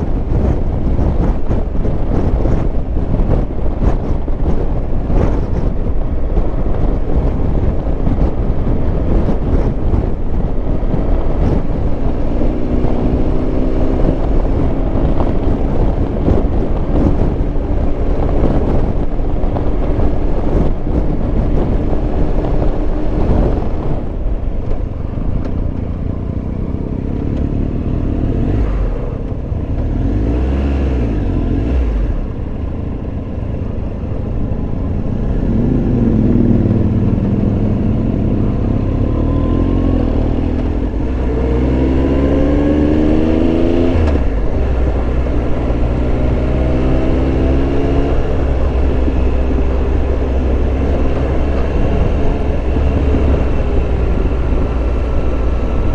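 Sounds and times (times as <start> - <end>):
wind and road noise: 0.0 - 55.9
motorcycle engine revving: 33.6 - 55.9.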